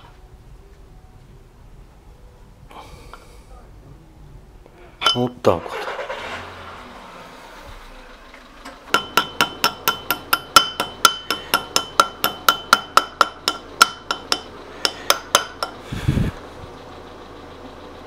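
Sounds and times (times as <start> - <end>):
hammer tapping metal pin: 9.0 - 15.8.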